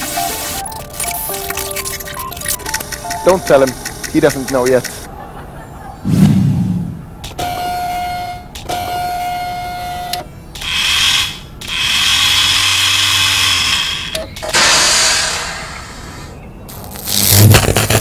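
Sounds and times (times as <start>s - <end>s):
electronic beeping tones: 0.0s - 5.0s
hissing noise: 0.0s - 5.1s, 14.5s - 18.0s
low hum: 0.6s - 7.3s.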